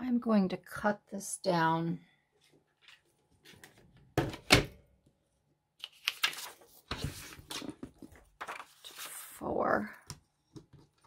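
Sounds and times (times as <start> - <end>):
paper card scraping and rustling: 5.8 - 9.5.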